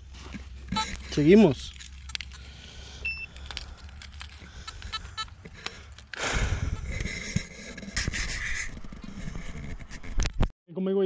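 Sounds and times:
footsteps on stony ground: 0.0s - 10.2s
metal detector beep: 0.7s - 3.4s.

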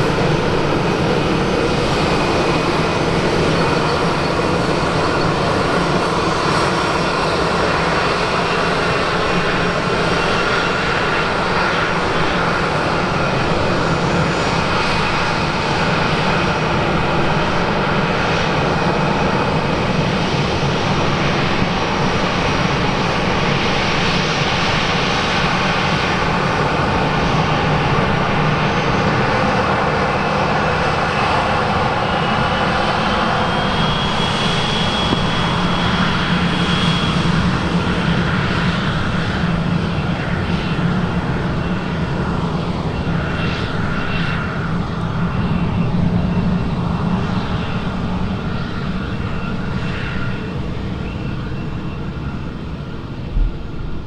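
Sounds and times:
jet engines rumbling and whining: 0.0s - 54.0s.

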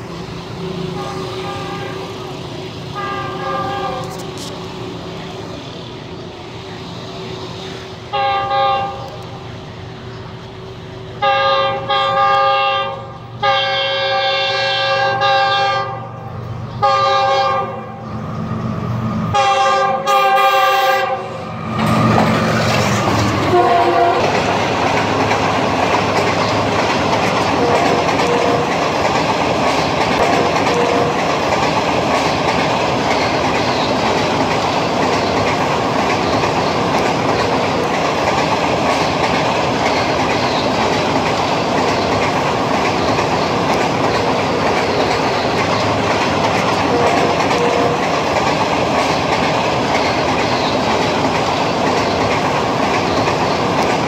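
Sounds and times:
locomotive horn blasts: 1.0s - 2.2s, 3.0s - 4.5s, 8.1s - 9.1s, 11.2s - 16.1s, 16.8s - 18.0s, 19.3s - 21.4s, 23.4s - 24.4s, 46.9s - 48.0s
train wheels clattering on rails: 13.6s - 54.0s.

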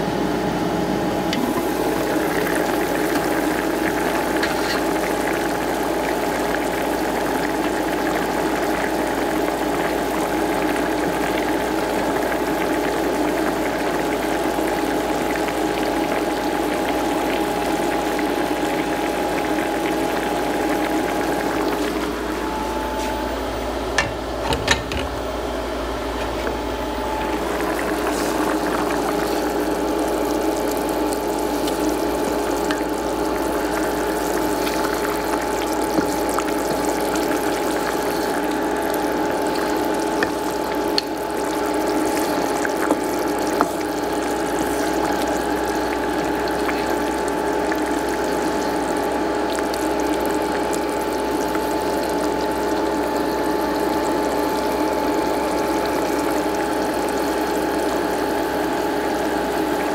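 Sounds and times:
stew bubbling in a pot: 1.3s - 59.9s.

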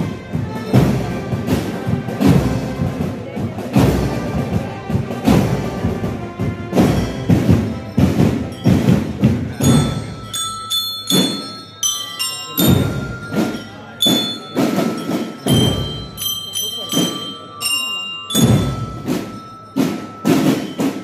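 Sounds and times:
marching band drum beat: 0.0s - 21.0s
bell lyres playing melody: 0.1s - 2.0s, 6.7s - 21.0s.

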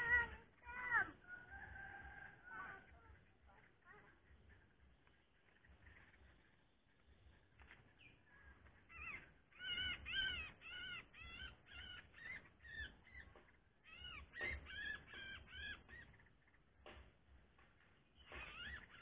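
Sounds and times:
bird chattering calls: 8.3s - 16.6s, 18.2s - 19.0s.

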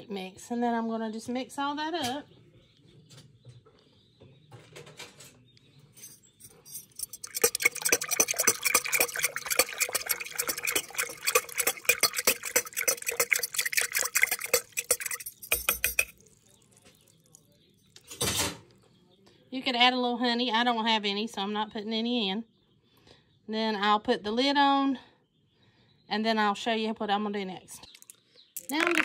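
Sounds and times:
spoon stirring water in container: 6.6s - 18.2s, 28.0s - 29.0s.

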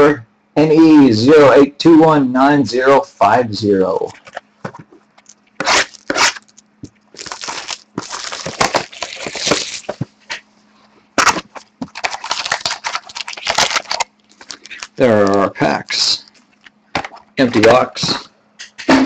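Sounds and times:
cardboard and wrappers rustling: 4.1s - 10.4s, 11.2s - 16.8s.

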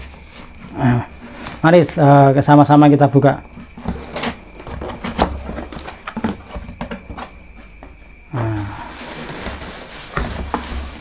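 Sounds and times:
packaging clicks and knocks: 3.6s - 7.4s, 9.0s - 11.0s.

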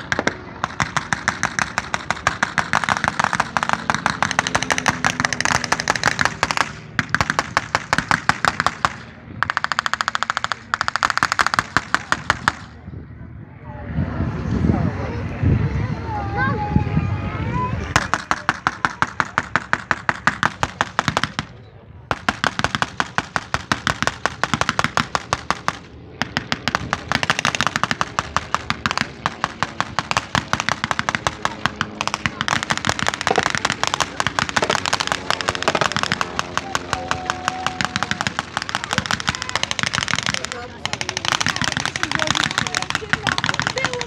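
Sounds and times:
rapid machine-gun pops: 0.0s - 12.7s, 22.1s - 44.0s.

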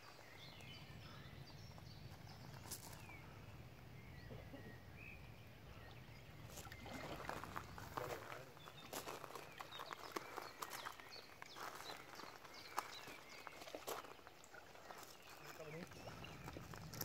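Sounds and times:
bird chirps: 0.0s - 17.0s
low steady rumble: 0.4s - 8.0s.

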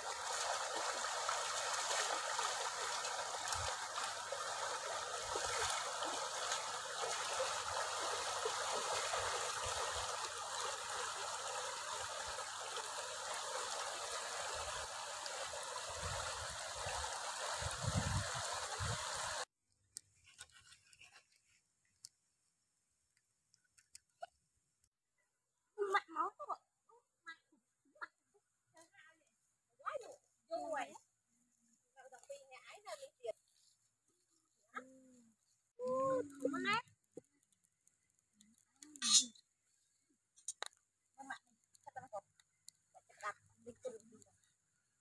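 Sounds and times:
stream running over rocks: 0.0s - 19.5s
faint ticks: 35.8s - 39.5s.

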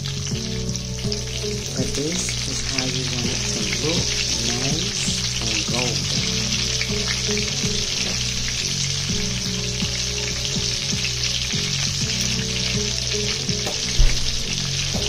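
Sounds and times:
cutlets sizzling in hot oil: 0.0s - 15.0s.

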